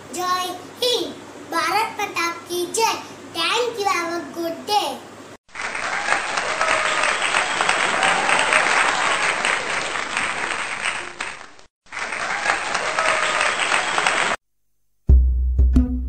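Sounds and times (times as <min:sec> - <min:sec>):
crowd applauding: 0:05.5 - 0:14.4.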